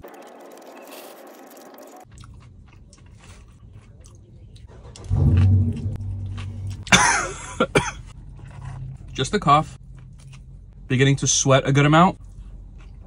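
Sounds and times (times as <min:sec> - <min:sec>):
person chewing crispy food: 0:00.1 - 0:04.7, 0:08.1 - 0:10.6, 0:12.2 - 0:13.0
closed-mouth hum: 0:04.8 - 0:08.0
person coughing: 0:06.8 - 0:08.1.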